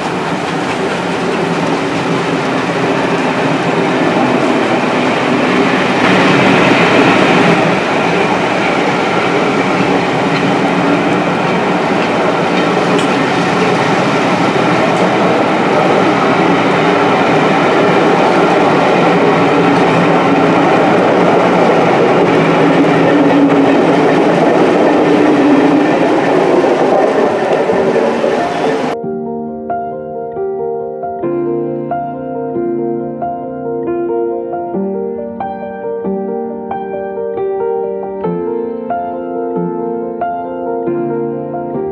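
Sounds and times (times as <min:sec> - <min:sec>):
train wheels rumbling on rails: 0:00.0 - 0:29.0.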